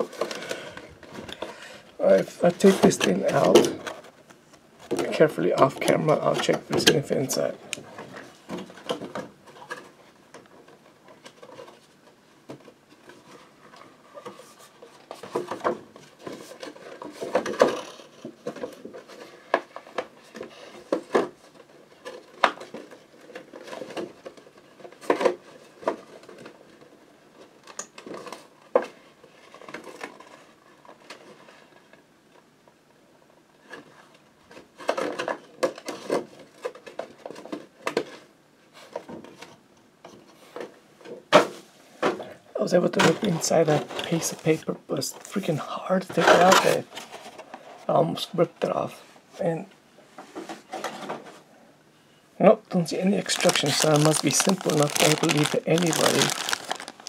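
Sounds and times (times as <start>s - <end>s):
paper rustling: 53.0s - 57.0s
packaging clicks and taps: 53.2s - 57.0s.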